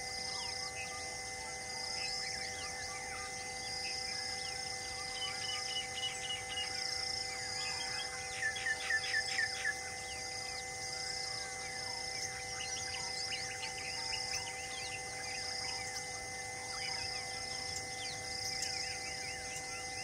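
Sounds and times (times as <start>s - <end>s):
insect high buzz: 0.0s - 20.0s
steady humming tones: 0.0s - 20.0s
bird chirps and whistles: 7.5s - 10.6s.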